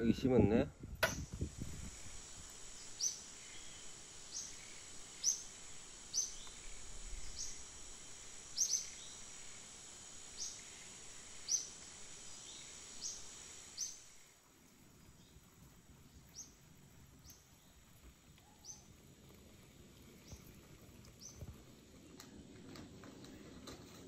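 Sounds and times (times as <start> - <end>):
faint background hiss: 0.0 - 24.0
small bird chirping: 2.2 - 14.2, 18.4 - 18.9.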